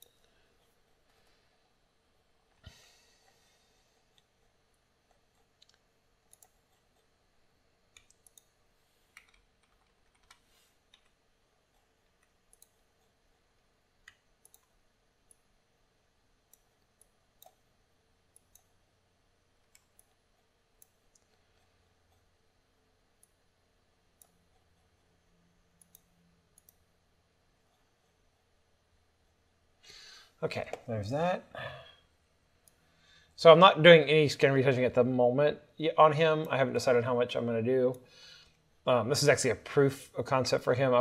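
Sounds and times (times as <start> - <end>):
computer mouse and keyboard clicks: 4.0 - 7.1, 7.9 - 13.4, 14.0 - 15.5.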